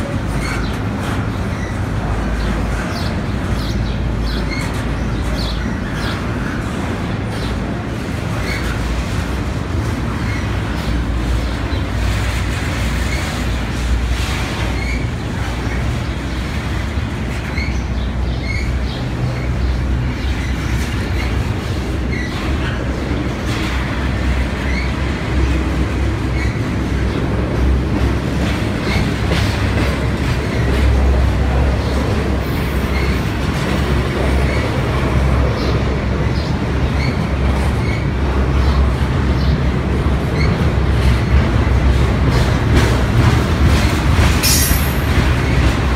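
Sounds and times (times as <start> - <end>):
freight train rumbling: 0.0 - 45.9
train wheel clicks: 40.4 - 45.9.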